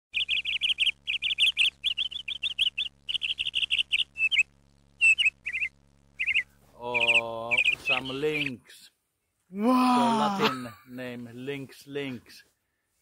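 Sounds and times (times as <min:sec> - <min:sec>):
small bird chirping: 0:00.1 - 0:08.9.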